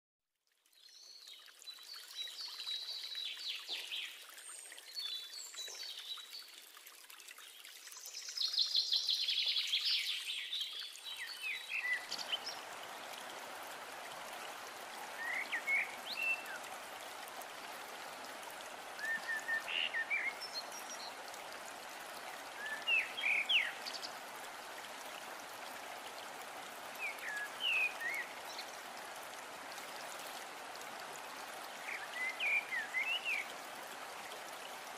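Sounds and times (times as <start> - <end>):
running water rushing: 0.6 - 34.9
birds chirping: 19.0 - 21.2.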